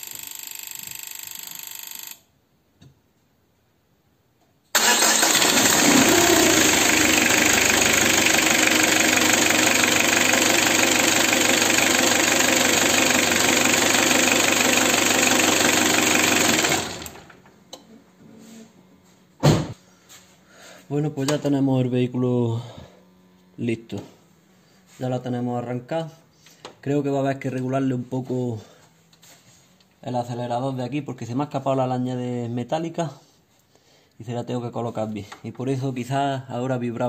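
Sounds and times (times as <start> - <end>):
diesel engine starting and running: 4.8 - 17.5
thump: 19.4 - 19.8.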